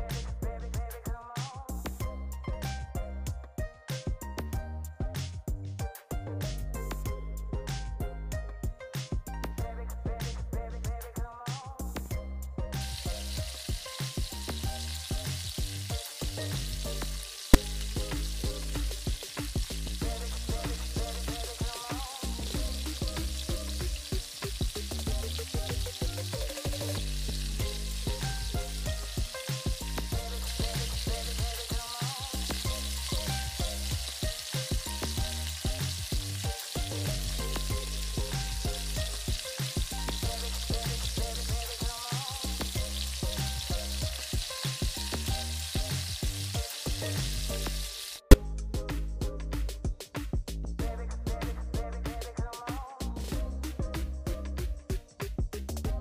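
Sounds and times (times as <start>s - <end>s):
background music with steady beat: 0.0s - 56.0s
batter sizzling in hot oil: 12.7s - 48.4s.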